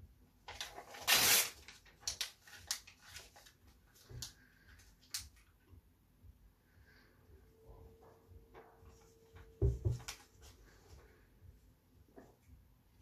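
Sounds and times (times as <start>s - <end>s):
paper tearing with teeth: 0.9s - 1.6s.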